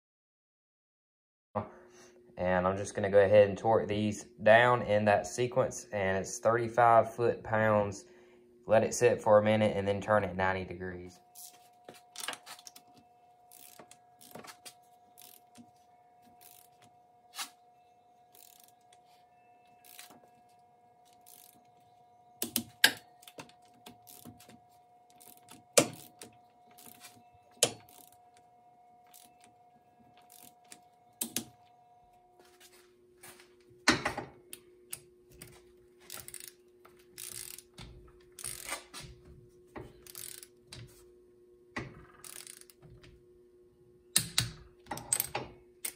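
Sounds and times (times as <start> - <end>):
faint steady hum: 1.6 - 45.9
torque wrench clicking and ratcheting: 13.5 - 14.6, 15.2 - 15.6, 16.4 - 16.8, 18.3 - 18.8, 19.8 - 20.2, 21.1 - 21.6, 22.4 - 24.5, 25.1 - 28.2, 29.1 - 29.5, 30.2 - 31.5, 36.0 - 36.6, 37.2 - 38.8, 39.9 - 40.6, 42.0 - 42.8, 44.2 - 45.9.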